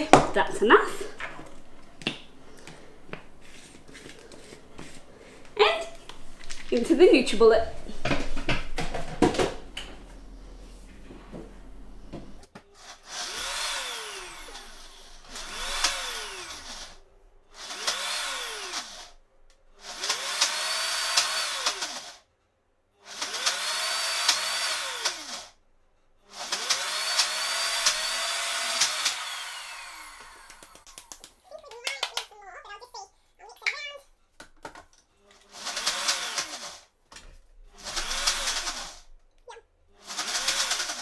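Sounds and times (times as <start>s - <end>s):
blender motor whine: 12.8s - 17.0s, 17.6s - 19.2s, 19.8s - 22.2s, 23.1s - 25.6s, 26.3s - 30.9s, 35.4s - 36.9s, 37.8s - 39.1s, 40.0s - 41.0s.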